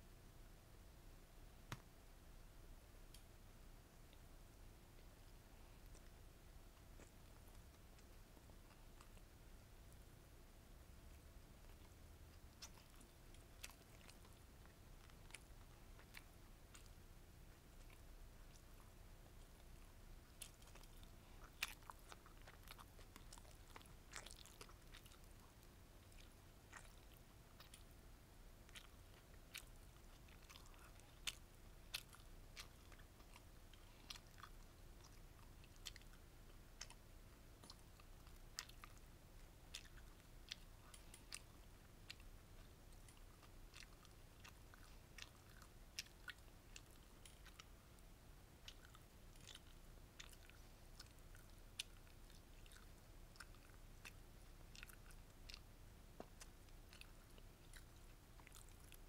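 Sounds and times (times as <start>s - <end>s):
mouth chewing crunchy food: 5.0s - 10.1s, 10.9s - 59.0s.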